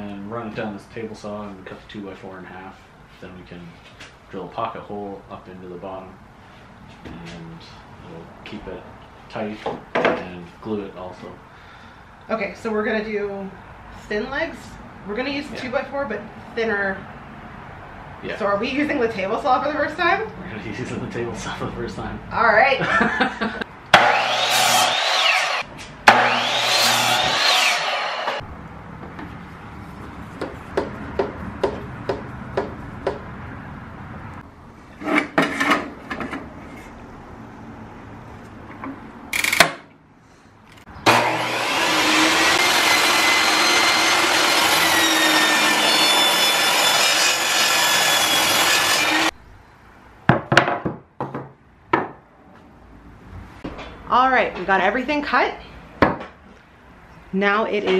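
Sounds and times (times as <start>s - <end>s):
table saw cutting wood: 23.9s - 28.4s, 41.0s - 49.3s.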